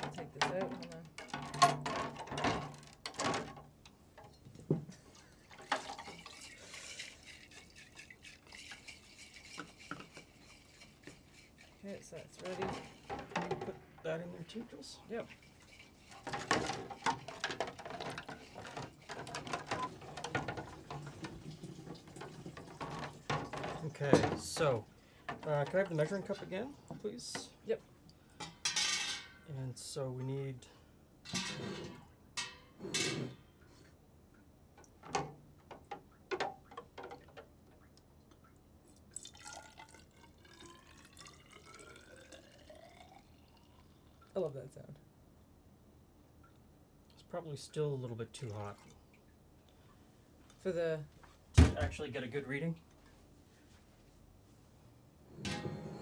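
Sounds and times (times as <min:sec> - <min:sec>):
liquid trickling into cylinder: 0:05.2 - 0:13.4, 0:38.2 - 0:44.4.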